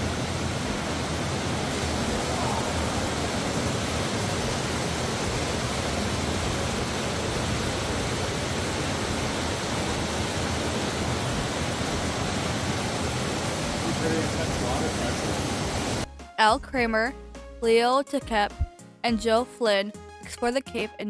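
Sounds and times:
waterfall roaring over rock: 0.0s - 16.1s.

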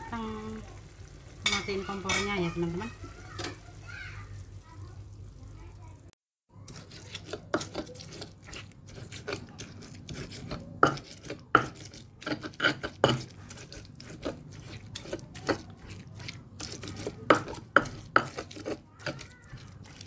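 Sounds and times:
utensil scraping stone mortar: 6.7s - 20.0s.

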